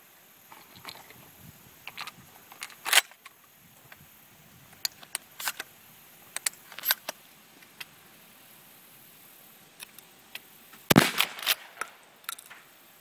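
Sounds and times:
shells clicking into shotgun: 10.9s - 12.6s.

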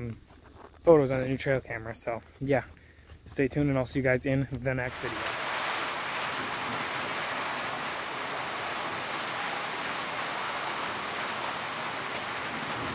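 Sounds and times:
steady rain falling: 4.9s - 12.9s.

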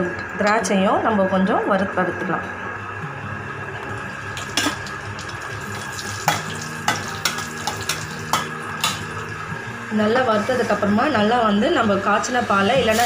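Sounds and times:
nuts sizzling in oil: 4.1s - 9.5s, 12.3s - 13.0s.

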